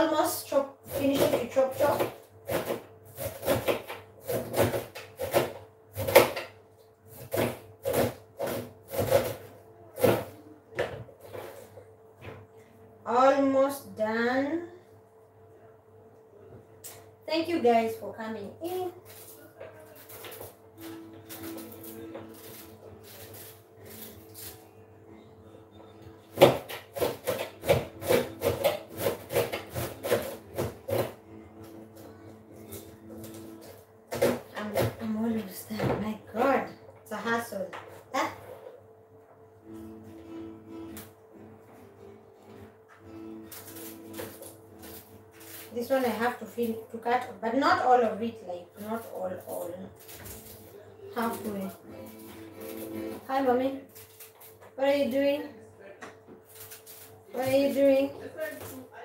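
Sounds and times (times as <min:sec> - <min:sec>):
knife chopping on plastic board: 0:00.9 - 0:06.6, 0:07.2 - 0:11.0, 0:26.4 - 0:31.2, 0:34.1 - 0:35.0.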